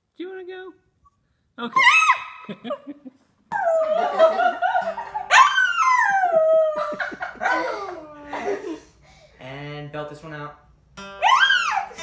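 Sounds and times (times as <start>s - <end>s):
dog howling: 5.3s - 8.3s, 11.2s - 12.0s.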